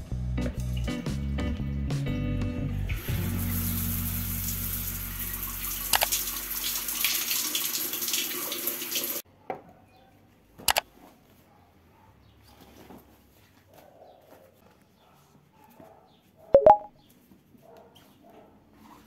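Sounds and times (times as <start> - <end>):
shower water spraying on tiles: 3.0 - 9.2.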